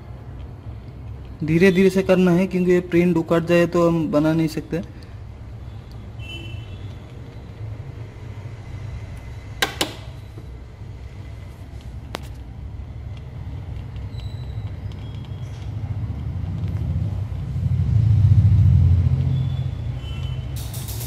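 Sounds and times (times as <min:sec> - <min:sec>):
steady low rumble: 0:15.6 - 0:19.9.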